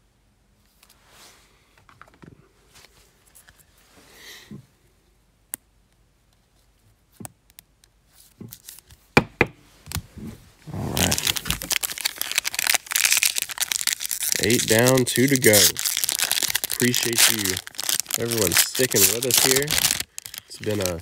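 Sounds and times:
cards and sleeves rustling: 9.8s - 21.0s
plastic wrapper crinkling: 10.9s - 21.0s.

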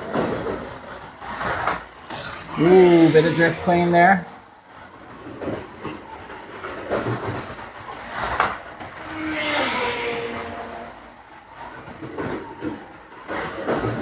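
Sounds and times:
slot car motor and tyre noise: 0.0s - 14.0s
whine shifting in pitch: 2.4s - 4.5s.

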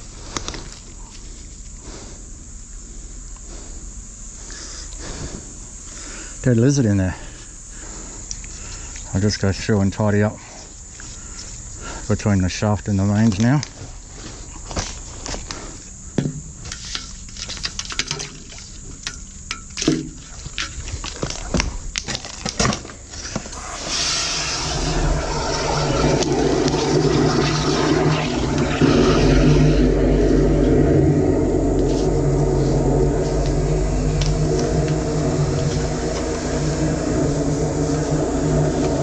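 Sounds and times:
water spraying through drain: 23.4s - 30.8s.

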